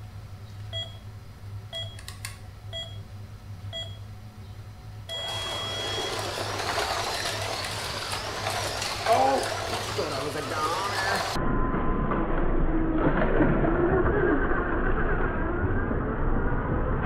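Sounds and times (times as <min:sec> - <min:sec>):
low electrical hum: 0:00.0 - 0:17.0
short countdown beeps: 0:01.7 - 0:02.0, 0:02.7 - 0:03.0, 0:03.7 - 0:04.0
long start tone: 0:05.1 - 0:06.9
slot cars running on track: 0:05.1 - 0:11.4.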